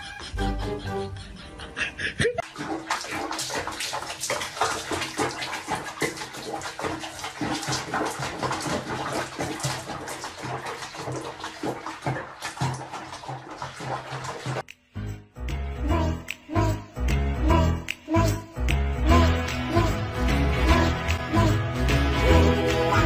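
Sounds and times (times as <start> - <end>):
water splashing and sloshing: 2.3 - 14.7.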